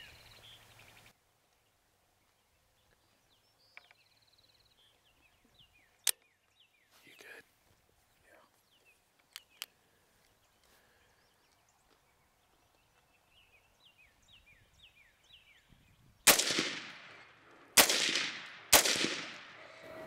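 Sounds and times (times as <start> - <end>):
rifle shots echoing: 16.2 - 19.7.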